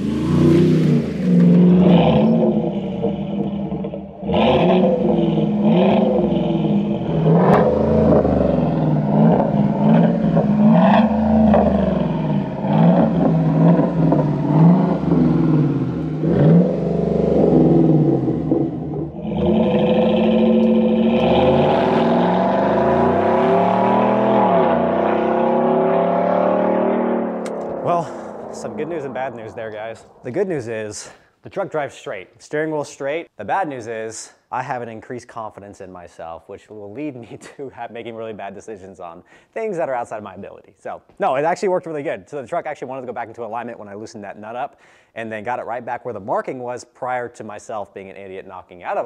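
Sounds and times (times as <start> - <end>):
truck engine revving: 0.0 - 30.7.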